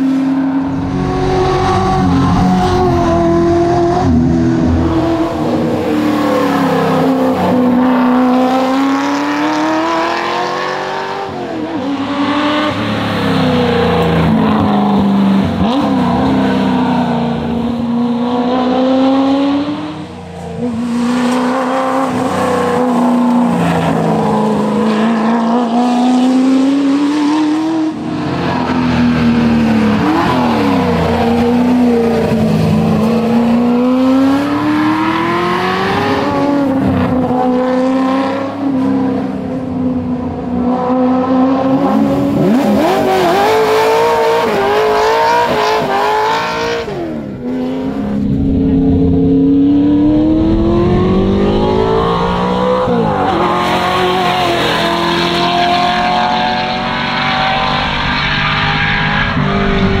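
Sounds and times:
car engine revving hard: 40.9 - 60.0.

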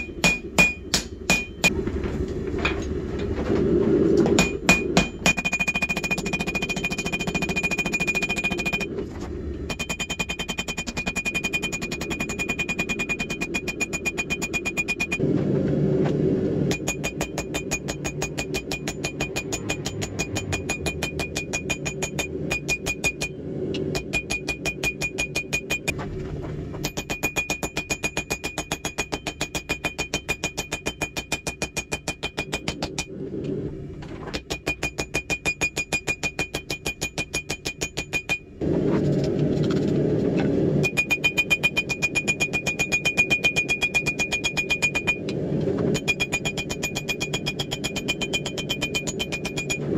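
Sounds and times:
anvil ringing: 0.0 - 1.7, 4.4 - 8.9, 9.7 - 15.2, 16.7 - 25.9, 26.8 - 32.8, 34.5 - 38.5, 40.9 - 45.2, 46.0 - 49.9
hammer striking steel on anvil: 0.0 - 1.7, 4.4 - 8.9, 9.7 - 15.2, 16.7 - 25.9, 26.8 - 33.1, 34.4 - 38.5, 40.8 - 45.2, 45.9 - 49.9.

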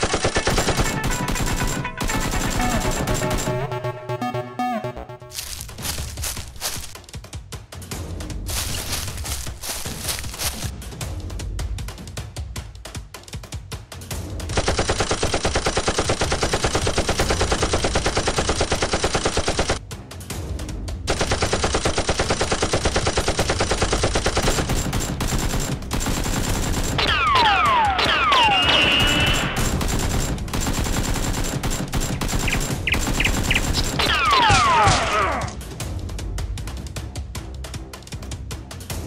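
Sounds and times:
automatic gunfire: 0.0 - 3.6, 14.5 - 19.8, 21.1 - 35.2.

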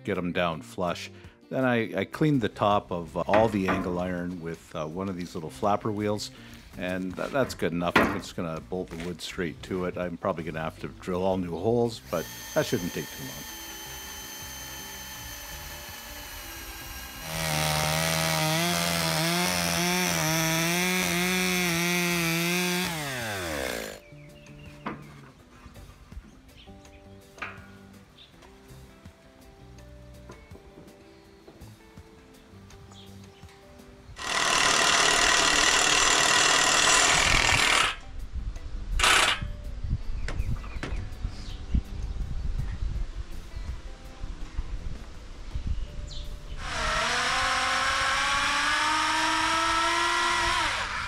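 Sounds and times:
chainsaw cutting wood: 12.1 - 24.0, 34.2 - 38.1, 39.0 - 39.5, 46.6 - 51.0
chainsaw idling hum: 12.1 - 24.0, 34.2 - 37.8
loud power tool running: 12.1 - 24.0, 34.2 - 38.0, 39.0 - 39.4, 46.6 - 51.0.

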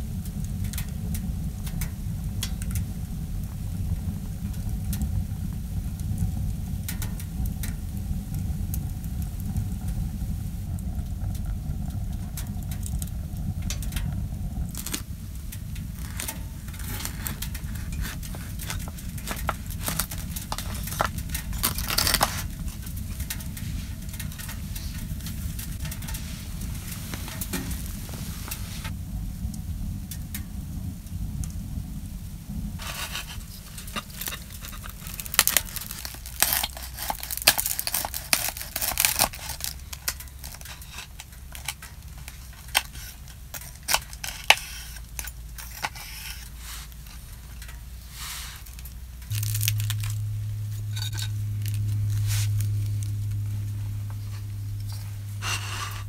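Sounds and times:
steady low rumble: 0.0 - 56.0
wood fire crackling: 0.0 - 56.0
knife cutting crusty bread: 32.8 - 39.8.

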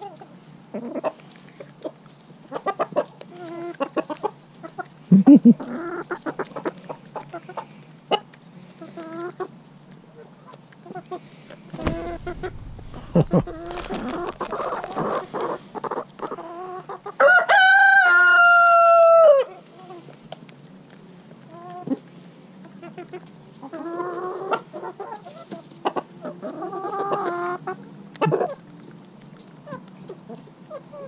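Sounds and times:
chickens clucking: 0.1 - 9.6, 11.8 - 17.2, 22.6 - 28.6
rooster crowing: 17.2 - 19.4.

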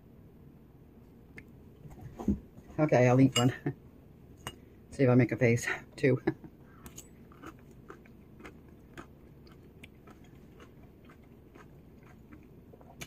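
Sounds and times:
person chewing crunchy pickle: 6.8 - 13.0.

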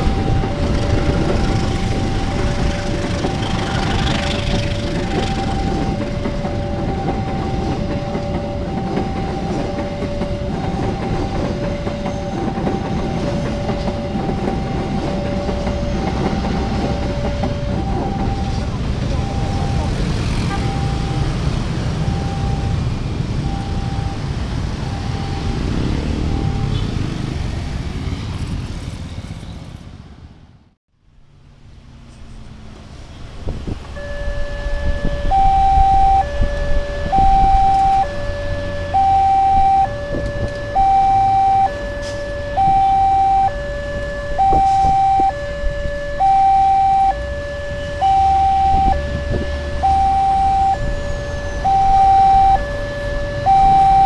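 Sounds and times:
level crossing two-tone alarm: 0.0 - 26.8, 34.0 - 54.0
motorcycles and cars passing: 0.0 - 29.9, 47.2 - 54.0
road traffic: 0.0 - 54.0.

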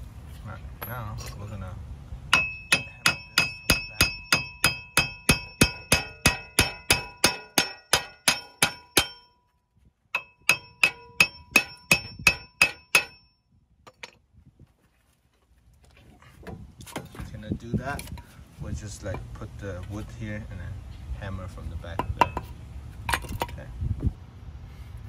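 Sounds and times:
hammer striking metal: 2.3 - 9.4, 10.2 - 13.3.

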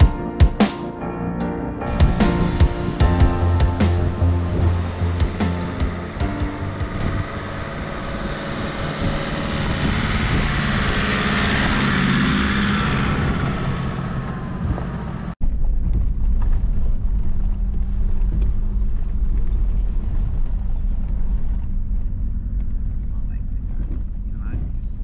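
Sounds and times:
vehicle engine and tyres: 1.9 - 25.0
engine and road rumble inside cabin: 3.0 - 25.0.

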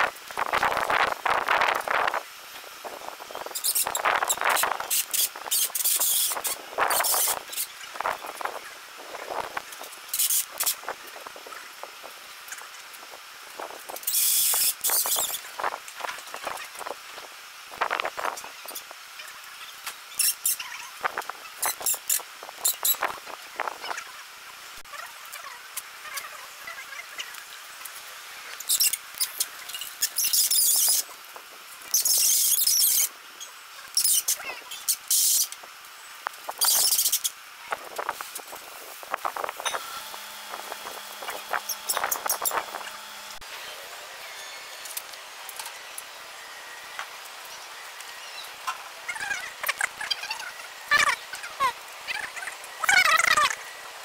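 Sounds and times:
loud high scraping hiss: 0.4 - 11.4, 36.4 - 54.0
short hissing bursts: 2.8 - 11.4, 13.8 - 15.8, 34.0 - 35.6, 36.4 - 43.4.

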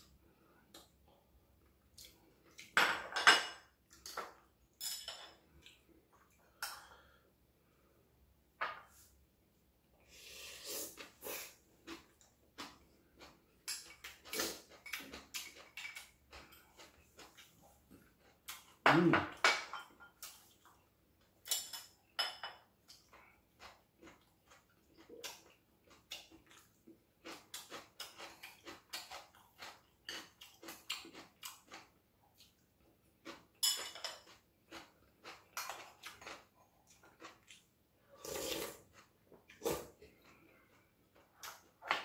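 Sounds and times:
chewing: 11.8 - 18.8, 22.8 - 41.8.

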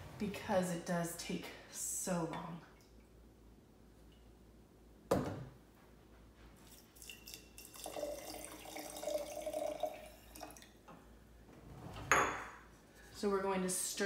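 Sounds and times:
water pouring into glass jar: 6.6 - 10.7.

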